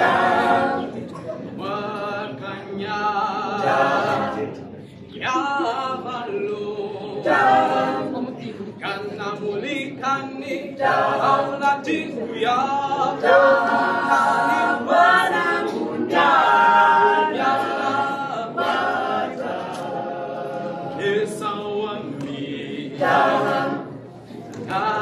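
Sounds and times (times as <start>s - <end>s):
group singing unaccompanied: 0.0s - 25.0s.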